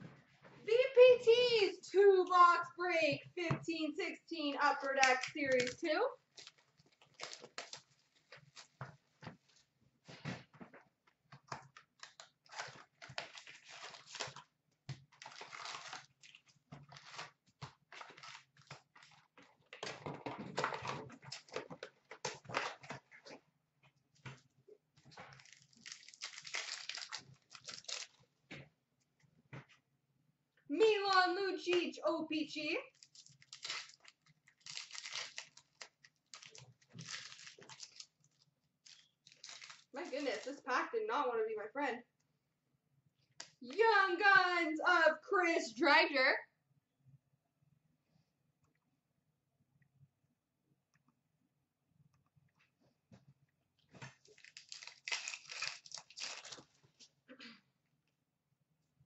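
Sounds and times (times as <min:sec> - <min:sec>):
foil packs crinkling: 0:05.0 - 0:08.8, 0:12.0 - 0:19.3, 0:25.2 - 0:28.2, 0:32.9 - 0:40.6, 0:54.1 - 0:57.0.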